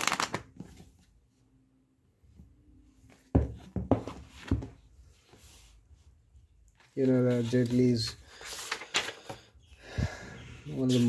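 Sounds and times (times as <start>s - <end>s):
book thumping on a table: 3.3s - 4.8s
book pages riffling: 6.8s - 9.5s.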